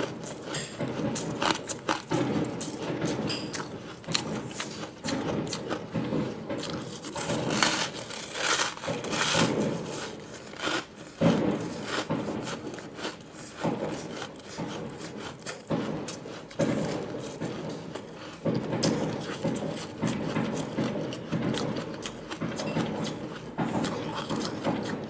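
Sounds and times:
crunching ice being chewed: 0.0 - 25.0.

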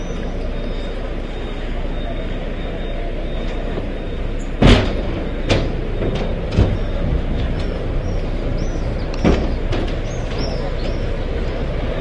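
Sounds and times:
steady rumbling background: 0.0 - 12.0
knocks on glass and metal railing: 9.2 - 11.1.

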